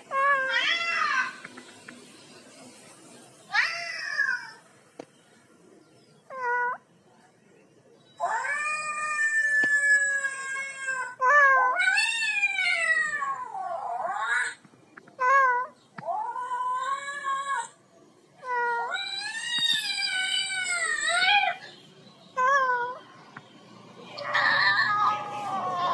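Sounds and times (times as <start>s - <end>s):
recorded cat meows and yowls: 0.1s - 1.4s, 3.5s - 4.6s, 8.2s - 14.6s, 18.4s - 21.6s.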